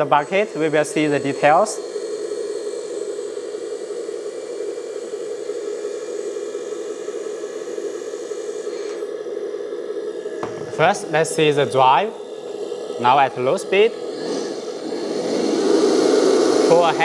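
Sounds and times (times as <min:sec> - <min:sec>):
hydraulic pump running: 0:00.0 - 0:17.0
toy truck engine noise: 0:10.9 - 0:17.0.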